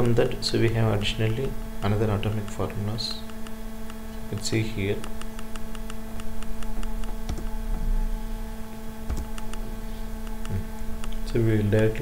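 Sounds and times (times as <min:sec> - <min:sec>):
electrical hum: 0:00.0 - 0:12.0
soft low thumps: 0:09.0 - 0:11.3.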